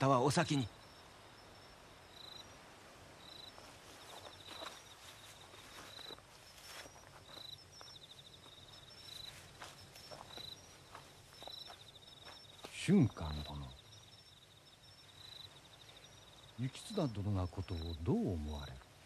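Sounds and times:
crickets chirping: 0.0 - 19.0
soft footsteps: 3.5 - 13.5.

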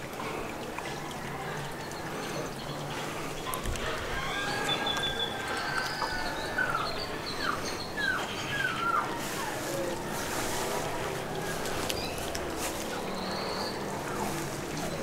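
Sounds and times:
irrigation water running: 0.0 - 13.1
birds whistling: 2.3 - 9.2, 13.0 - 15.0.

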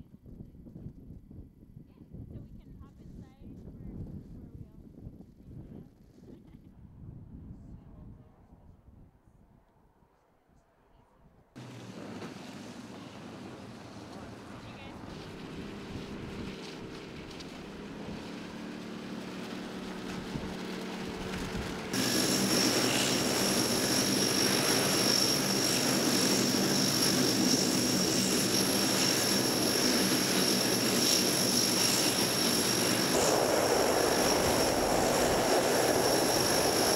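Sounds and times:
propeller drone: 11.6 - 36.9
high turbine whine: 19.7 - 36.9.

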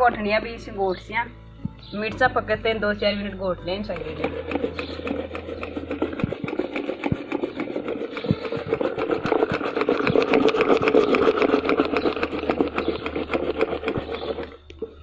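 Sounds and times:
wooden stick rattling in steel pot: 3.8 - 15.0.

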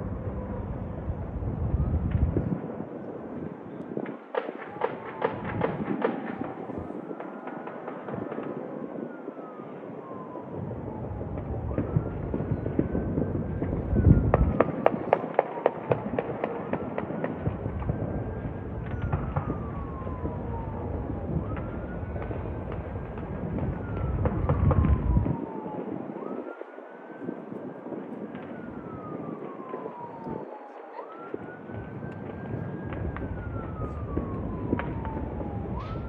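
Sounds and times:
low rumble: 0.0 - 2.6
emergency vehicle siren wailing: 0.0 - 36.0
fireworks popping and crackling: 2.0 - 9.2, 10.6 - 36.0.

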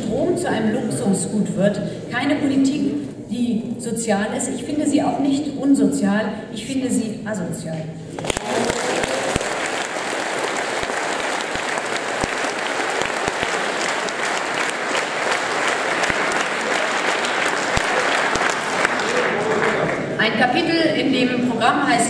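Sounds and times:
audience applauding: 8.1 - 20.2.

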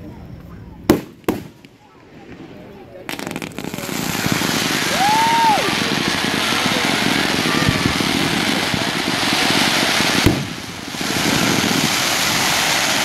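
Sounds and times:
fireworks hissing and crackling: 0.7 - 13.0
firework bang: 0.9 - 13.0.

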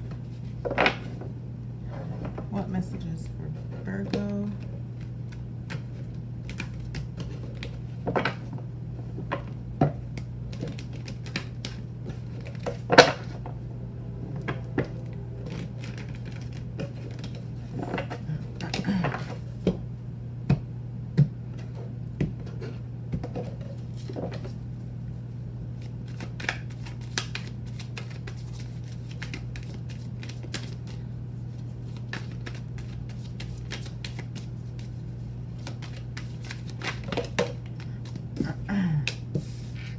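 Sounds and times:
steady low hum: 0.0 - 39.9
cards being shuffled: 4.1 - 8.5, 10.1 - 13.4, 14.4 - 19.7, 25.7 - 39.9.

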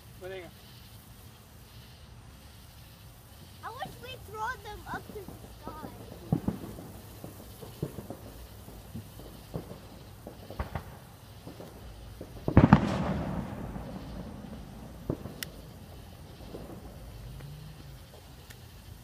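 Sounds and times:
fireworks popping: 0.0 - 19.0
loud firework bang: 5.3 - 17.6.

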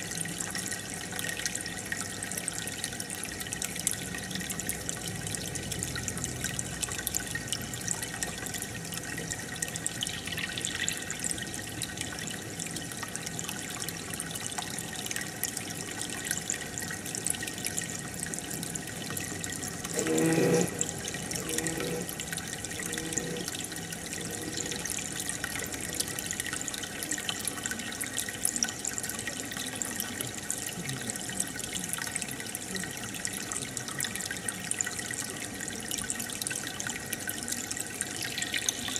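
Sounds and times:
water trickling and dripping: 0.0 - 38.9.

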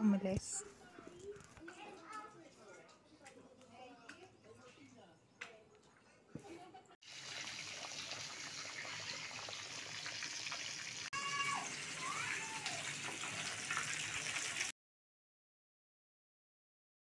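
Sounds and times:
pot boiling with bubbling hiss: 7.0 - 14.7
short falling cries: 11.1 - 12.8.

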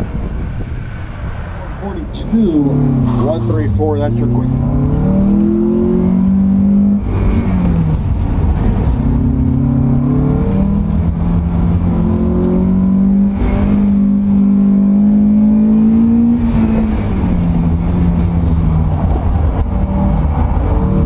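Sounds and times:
wind rumbling on microphone: 0.0 - 21.0
car engine revving hard: 1.8 - 21.0.

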